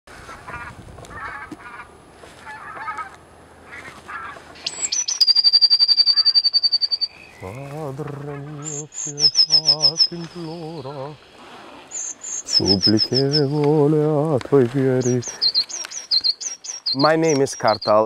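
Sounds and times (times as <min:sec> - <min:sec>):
bird calls and trills: 0:00.3 - 0:18.0
baritone singing operatically: 0:07.4 - 0:11.3, 0:12.6 - 0:15.4.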